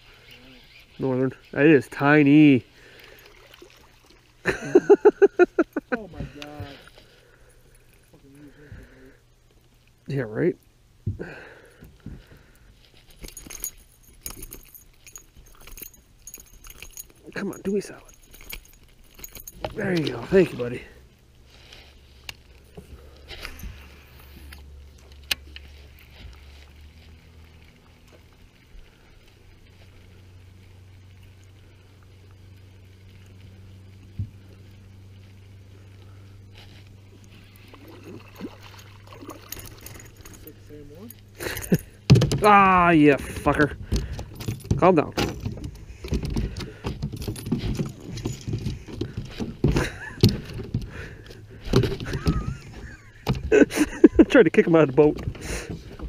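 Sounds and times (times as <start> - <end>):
fishing tackle rattling: 13.0 - 20.8, 37.6 - 56.0.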